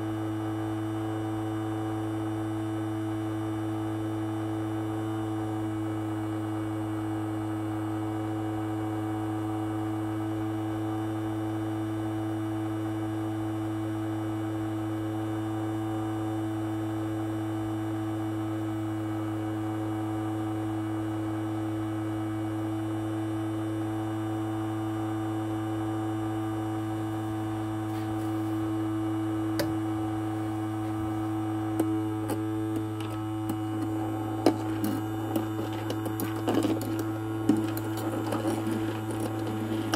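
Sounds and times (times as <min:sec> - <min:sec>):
ultrasonic cleaner humming: 0:27.9 - 0:39.9.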